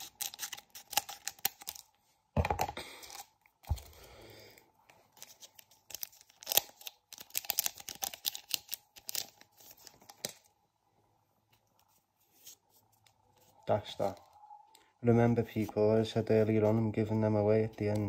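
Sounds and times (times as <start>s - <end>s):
wrapper tearing and crinkling: 0.0s - 1.9s, 5.2s - 10.5s.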